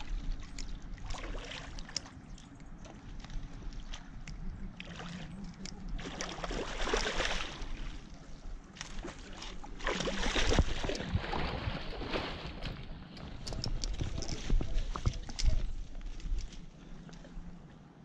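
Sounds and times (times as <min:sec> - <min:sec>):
fish splashing in water: 0:04.8 - 0:07.9, 0:08.9 - 0:12.7.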